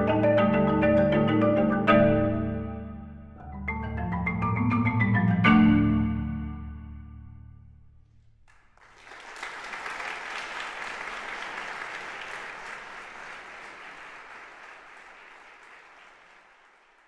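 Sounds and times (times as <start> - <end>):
audience applauding: 8.5 - 17.0.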